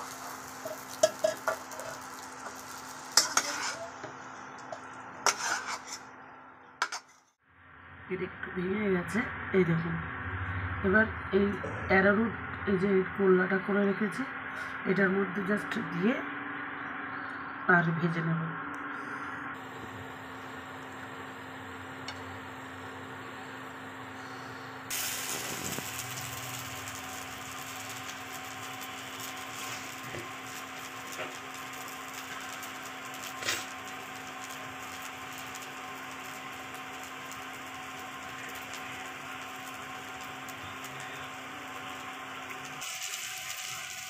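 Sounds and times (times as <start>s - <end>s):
oil sizzling in a wok: 0.0s - 6.1s, 19.6s - 44.0s
cooktop hum: 0.0s - 44.0s.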